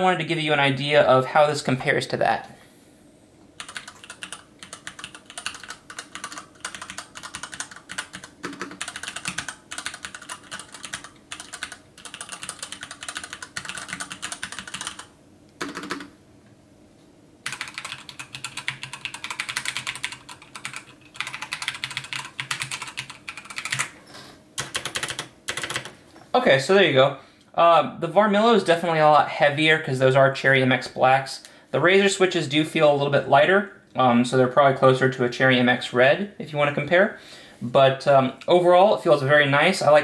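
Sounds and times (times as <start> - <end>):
fast mechanical keyboard typing: 3.6 - 16.1, 17.4 - 24.0, 24.6 - 26.0.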